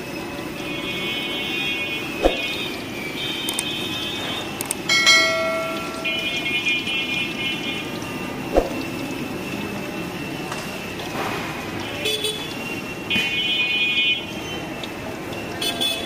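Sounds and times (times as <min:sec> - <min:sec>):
street traffic: 0:00.0 - 0:16.0
vehicle horns tooting: 0:00.5 - 0:08.4, 0:11.8 - 0:14.8, 0:15.4 - 0:16.0.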